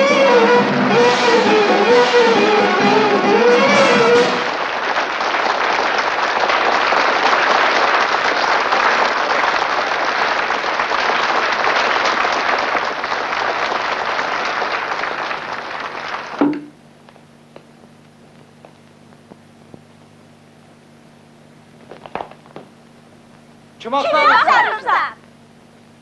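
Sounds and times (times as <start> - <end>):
applause: 4.3 - 16.4.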